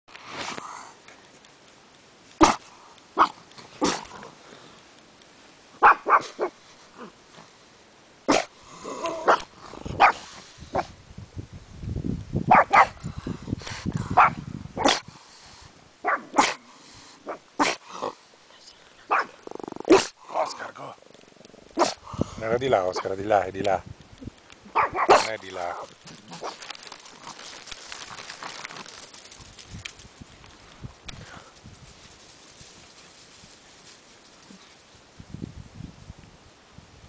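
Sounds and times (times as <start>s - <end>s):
dog barking: 5.8s - 6.6s, 8.3s - 8.5s, 9.2s - 10.2s, 12.5s - 13.0s, 14.2s - 15.0s, 16.0s - 16.6s, 19.1s - 20.1s, 21.8s - 22.0s, 24.7s - 25.3s.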